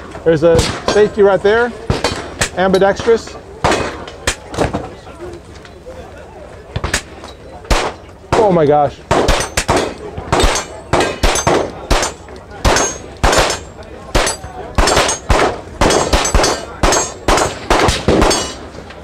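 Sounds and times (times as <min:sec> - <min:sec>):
bullets pinging steel targets: 0:01.8 - 0:04.6, 0:06.8 - 0:18.8
pistol shots: 0:01.8 - 0:04.7, 0:07.7 - 0:18.6.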